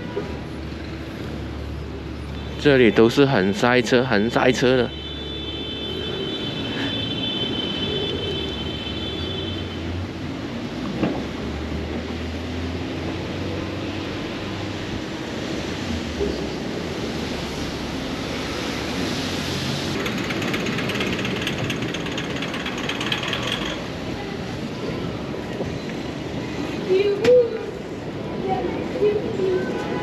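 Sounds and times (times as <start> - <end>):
idling and slow-moving cars: 0.0 - 30.0
fast mechanical rattle of clicks: 20.0 - 23.9.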